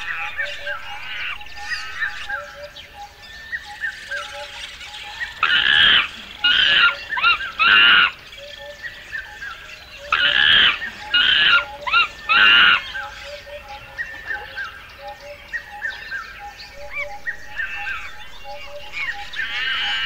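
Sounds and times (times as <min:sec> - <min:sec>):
monkeys screeching: 0:00.0 - 0:02.5, 0:04.2 - 0:08.2, 0:10.1 - 0:13.4, 0:16.8 - 0:20.0
small birds chirping: 0:00.0 - 0:20.0.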